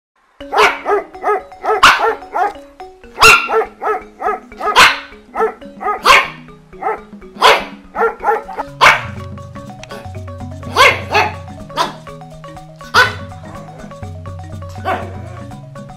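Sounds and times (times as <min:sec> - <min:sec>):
background music: 0:00.2 - 0:15.9
dog barking: 0:00.5 - 0:02.6, 0:03.2 - 0:09.2, 0:10.7 - 0:12.0, 0:12.9 - 0:13.3, 0:14.8 - 0:15.3.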